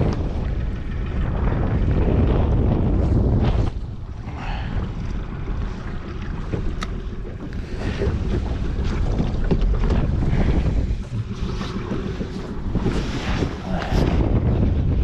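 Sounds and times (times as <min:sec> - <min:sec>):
wind buffeting microphone: 0:00.0 - 0:15.0
fishing gear knocking and rattling: 0:06.5 - 0:12.9.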